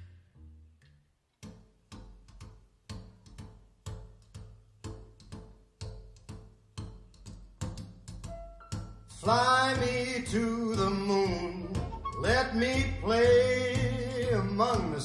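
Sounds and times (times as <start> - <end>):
bass line: 0.0 - 7.1, 8.2 - 15.0
steady drum beat over bass: 4.9 - 15.0.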